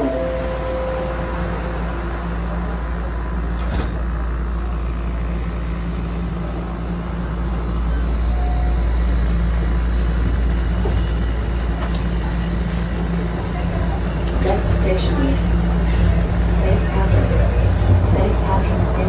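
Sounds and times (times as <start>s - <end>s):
subway train rumbling: 0.0s - 19.0s.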